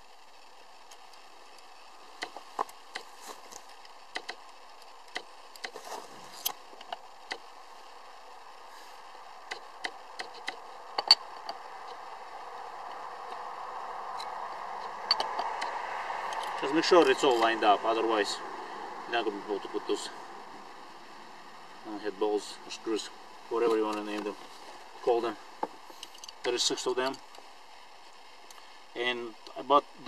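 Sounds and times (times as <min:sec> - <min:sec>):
steady hiss: 0:00.0 - 0:30.0
metal clicks and clinks: 0:09.5 - 0:12.0, 0:14.1 - 0:15.7, 0:26.0 - 0:27.3.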